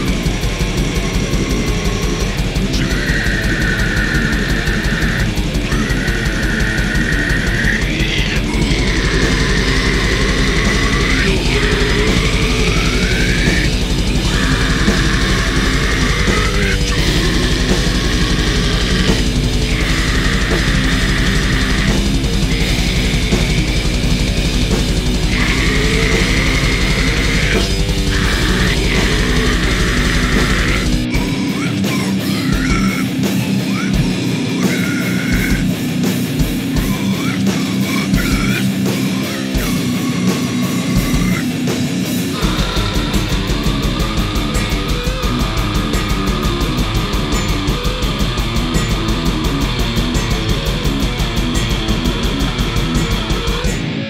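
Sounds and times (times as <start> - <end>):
high sustained screech: 0.0 - 33.1
distorted guitar: 0.0 - 54.0
fast drumming: 0.0 - 54.0
grindcore music: 0.0 - 54.0.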